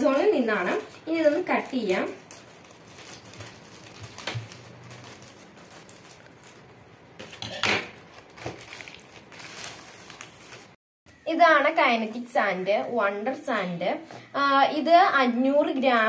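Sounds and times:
scissors cutting plastic: 0.0 - 6.6
plastic bag rustling and crinkling: 0.0 - 10.8.

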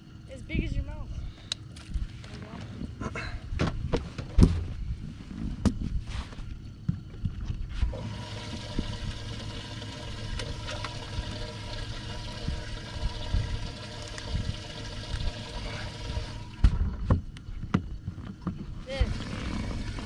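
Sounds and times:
faint motor whine: 0.0 - 20.0
water rushing and splashing from pump: 7.8 - 16.9, 18.8 - 20.0.

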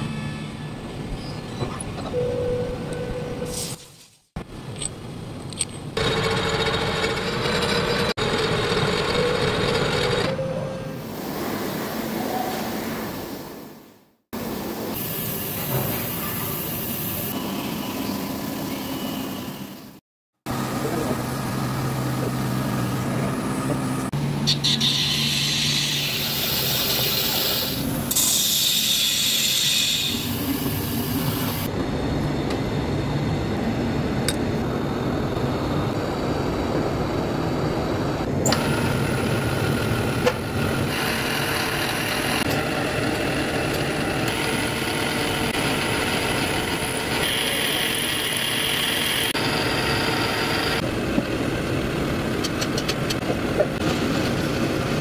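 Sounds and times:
milling machine: 38.5 - 50.8.

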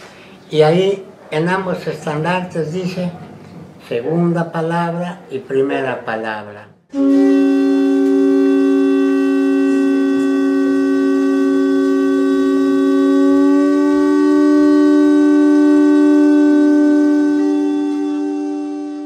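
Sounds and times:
long horn-like wind instrument note: 6.9 - 19.0.

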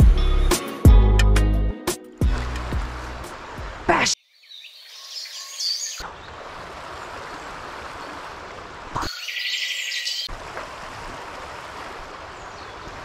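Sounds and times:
river water rushing: 2.2 - 4.2, 6.0 - 9.3, 10.0 - 13.0
small birds chirping: 3.3 - 6.3, 9.0 - 10.3.

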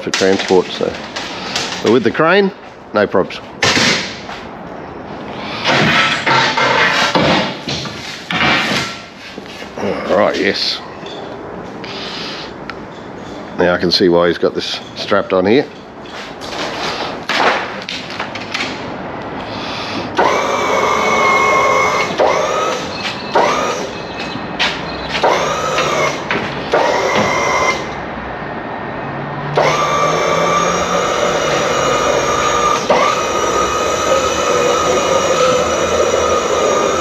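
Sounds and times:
small electric motor whining: 20.2 - 24.0, 25.2 - 28.0, 29.5 - 37.0.

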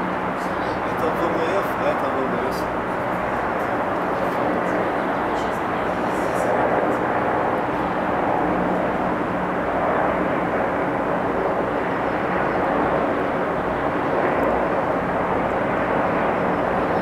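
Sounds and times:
distant helicopter drone: 0.0 - 17.0.

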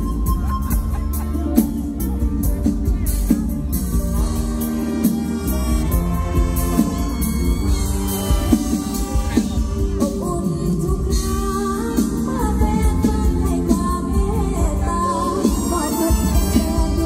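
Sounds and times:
bass-heavy beat: 0.0 - 17.0
live band music over pa system: 0.0 - 17.0
person singing: 6.9 - 17.0.

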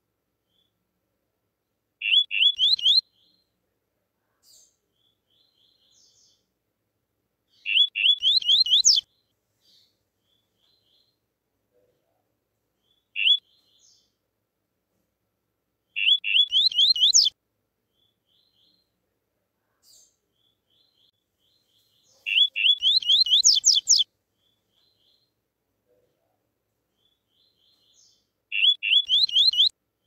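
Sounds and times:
bird singing whistled notes: 2.0 - 3.4, 7.5 - 9.1, 12.8 - 14.0, 15.9 - 17.4, 20.8 - 24.1, 27.0 - 29.7.

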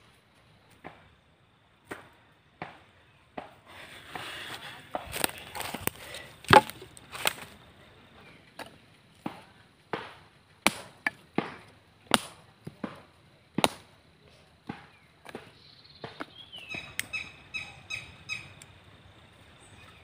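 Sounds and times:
machete chopping sticks: 3.4 - 7.5, 8.6 - 13.0, 13.6 - 13.9.

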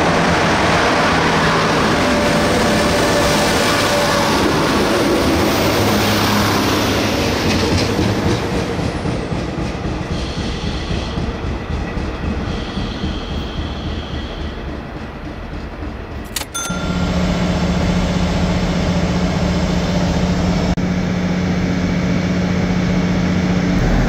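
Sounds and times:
diesel train rumbling on rails: 0.0 - 24.0
faint high wheel squeal: 12.4 - 14.6.

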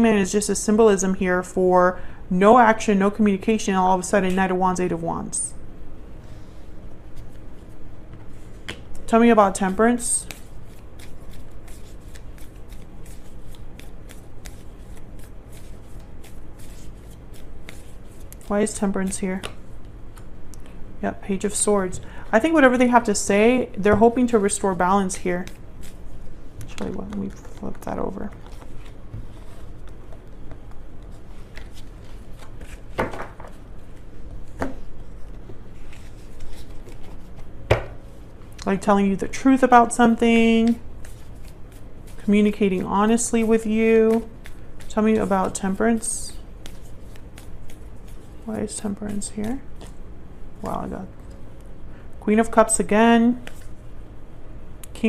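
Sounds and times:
cards being shuffled: 7.2 - 20.7, 26.6 - 37.9, 40.0 - 50.0, 53.3 - 53.8.

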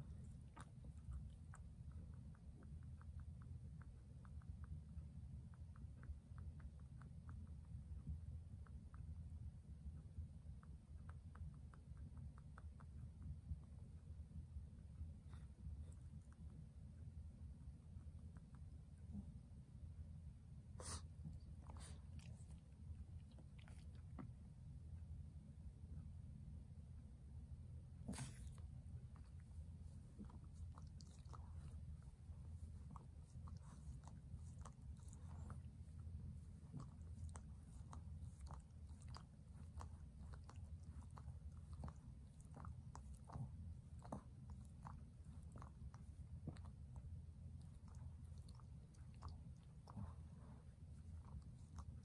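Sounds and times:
faint low room hum: 0.0 - 52.0
dog sniffing: 20.7 - 24.2, 28.0 - 47.0, 47.6 - 52.0.

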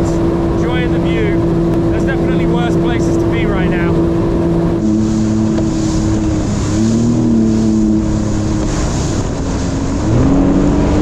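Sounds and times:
rushing water spray: 0.0 - 11.0
watercraft engine running: 0.0 - 11.0
wind: 0.0 - 11.0.

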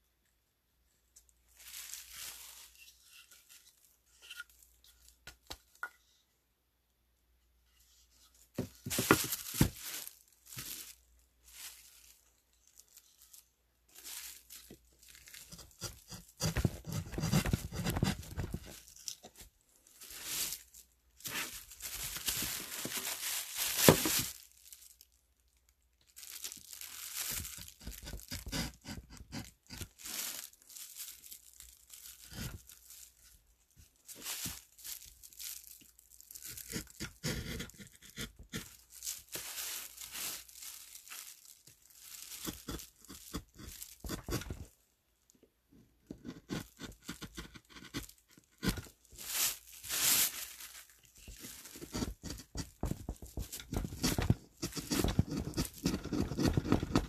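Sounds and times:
plastic sheet crinkling: 1.5 - 3.9, 8.5 - 15.6, 16.6 - 28.6, 29.6 - 37.0, 38.5 - 44.8, 48.0 - 57.0
chisel scraping wood: 15.4 - 18.7, 27.8 - 29.8, 36.6 - 38.7, 46.1 - 48.8, 51.8 - 57.0.

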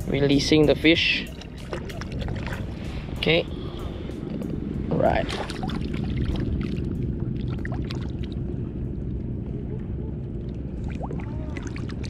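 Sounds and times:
wind rumble on microphone: 0.0 - 12.0
water splashing and lapping: 0.8 - 8.7, 10.4 - 12.0.

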